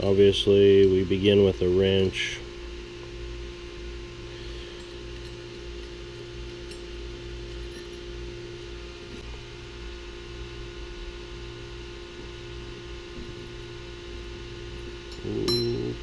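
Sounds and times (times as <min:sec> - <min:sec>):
steady background hum: 0:00.0 - 0:16.0
faint metallic clinks of wrench: 0:15.1 - 0:16.0.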